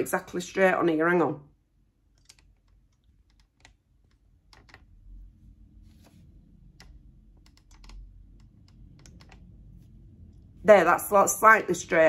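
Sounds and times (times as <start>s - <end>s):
small clicks and taps: 2.1s - 4.9s
low rumble: 4.8s - 12.0s.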